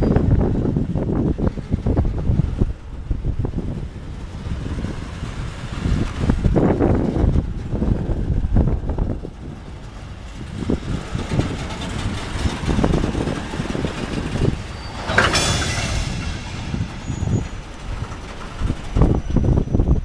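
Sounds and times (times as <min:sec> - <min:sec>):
train rumbling past: 0:00.0 - 0:20.0
loud hiss: 0:14.6 - 0:18.2.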